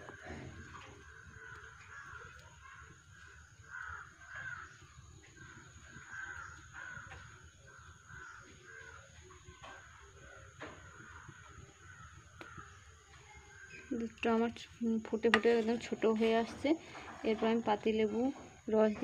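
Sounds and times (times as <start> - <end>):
crows cawing: 0.0 - 12.9.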